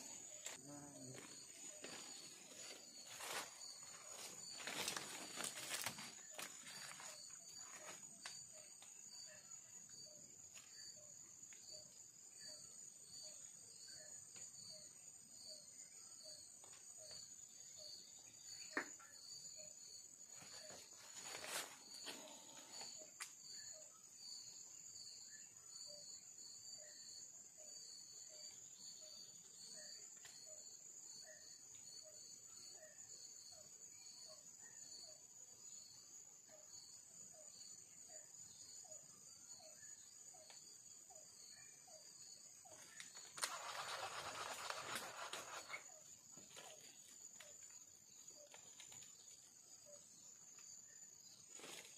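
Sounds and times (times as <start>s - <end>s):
insects buzzing: 0.0s - 51.9s.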